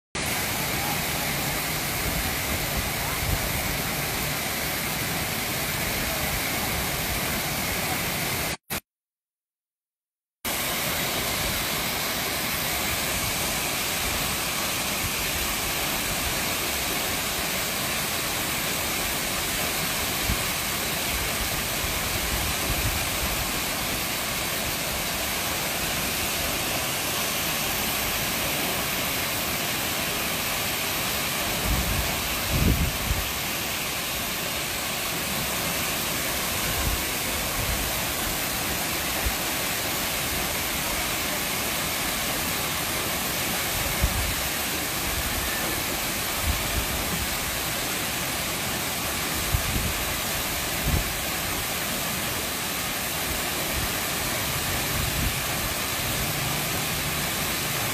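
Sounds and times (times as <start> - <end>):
waterfall rushing: 0.2 - 8.7, 10.5 - 57.9.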